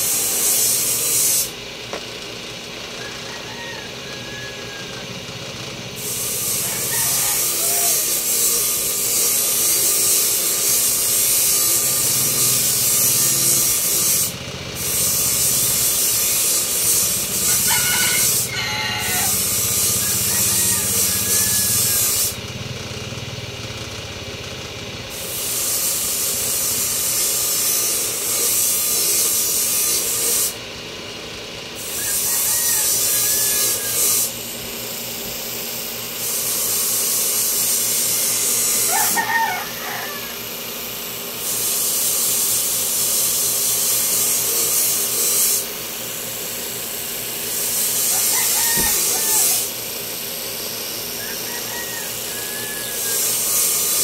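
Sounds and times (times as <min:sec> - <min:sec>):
power tool running: 0:00.0 - 0:54.0
rooster crowing: 0:03.0 - 0:05.3, 0:06.0 - 0:08.6, 0:15.4 - 0:22.4, 0:31.8 - 0:34.3, 0:38.8 - 0:40.6, 0:47.9 - 0:49.8, 0:51.2 - 0:53.5.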